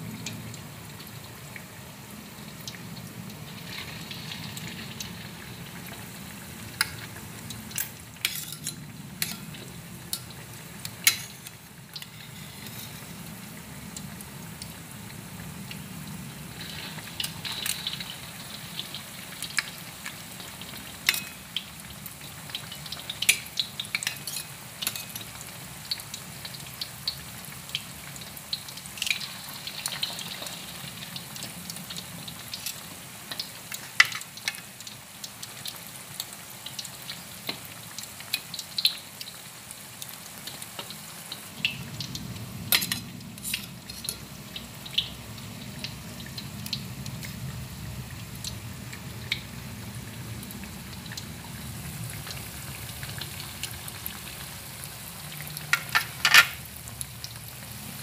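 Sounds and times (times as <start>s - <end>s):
patties deep-frying in oil: 0.0s - 58.0s
metal tongs clicking on wok: 7.8s - 9.5s, 11.0s - 11.6s, 21.1s - 21.4s, 23.2s - 25.3s.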